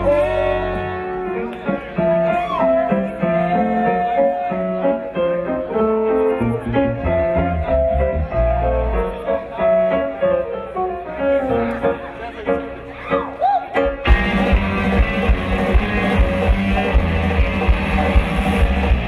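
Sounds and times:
horn section: 0.0 - 1.3
electric bass: 0.0 - 1.6, 6.3 - 9.4, 14.0 - 19.0
guitar: 0.0 - 19.0
keyboard: 0.0 - 19.0
drums: 13.0 - 19.0.

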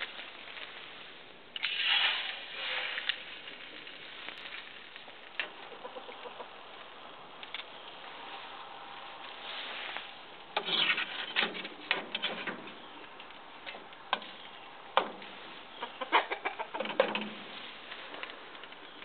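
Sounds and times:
eggs sizzling in a frying pan: 0.0 - 7.2.

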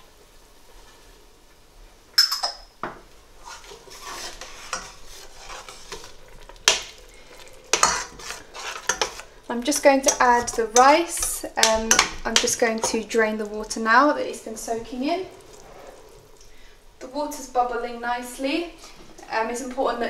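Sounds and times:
metal spoon scraping a pot: 3.4 - 13.2.

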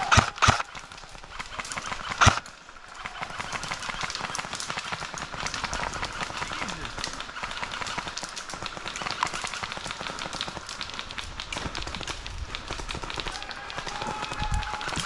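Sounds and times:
twigs snapping and clicking: 8.4 - 15.0.

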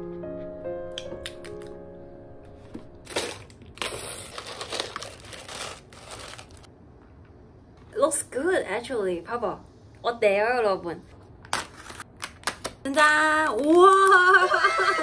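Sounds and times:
plastic bag crinkling: 3.1 - 6.7.

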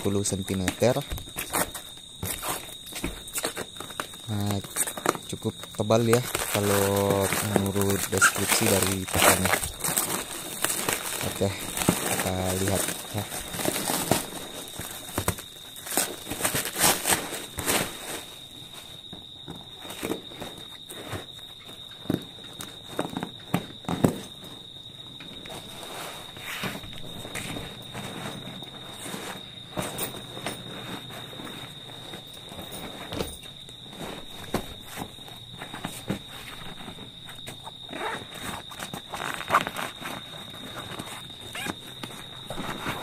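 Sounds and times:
bag knocks and thumps: 0.0 - 18.3, 26.6 - 43.0
fabric bag rustling: 5.6 - 18.4, 25.6 - 43.0
fabric rustling and brushing: 25.6 - 37.4.

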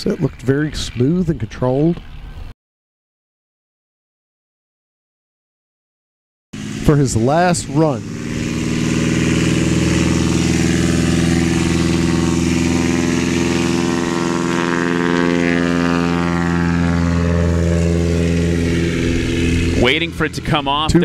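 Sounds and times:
light aircraft engine droning: 6.6 - 21.0.

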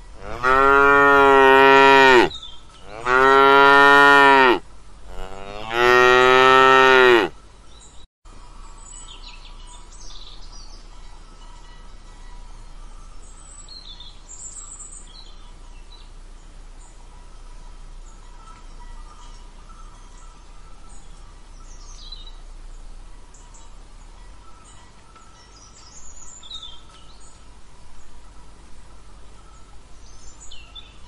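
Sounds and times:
cow mooing: 0.2 - 7.3.

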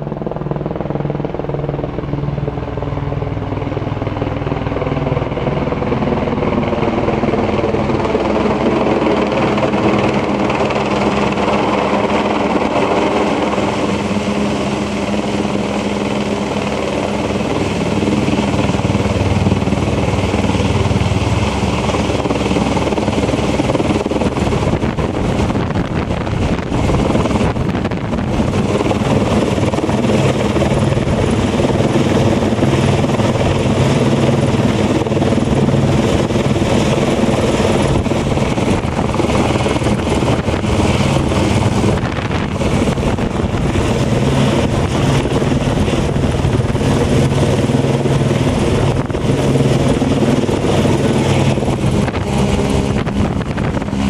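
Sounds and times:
helicopter rotor chopping: 0.0 - 54.0.

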